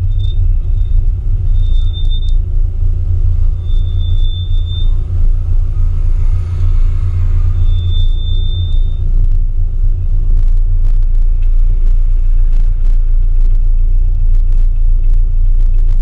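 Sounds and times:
thin high whine: 0.0s - 9.5s
car engine low rumble: 0.0s - 16.0s.

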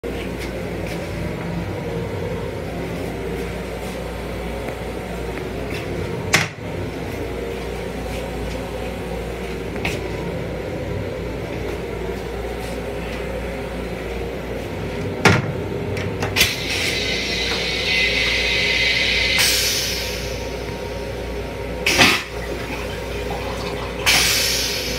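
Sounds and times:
railcar low hum: 0.0s - 24.9s
hiss: 16.4s - 20.5s, 24.1s - 24.9s.

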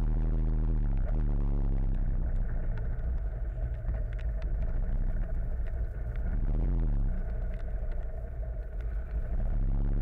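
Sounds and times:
car engines idling in traffic: 0.0s - 10.0s
raindrops ticking on camera: 1.8s - 9.7s.

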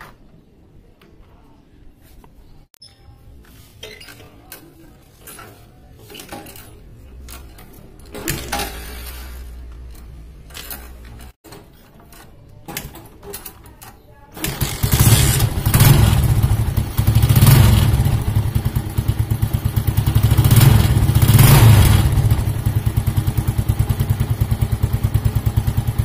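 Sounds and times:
engine turning over rumble: 14.4s - 26.0s.

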